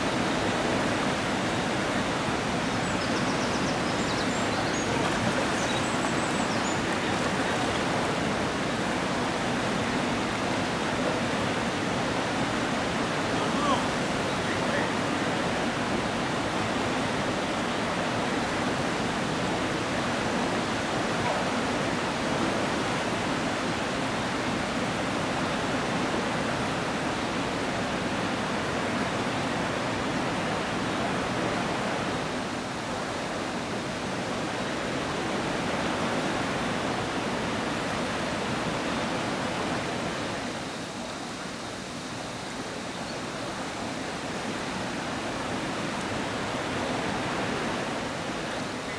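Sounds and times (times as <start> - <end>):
river water rushing over a weir: 0.0 - 48.9.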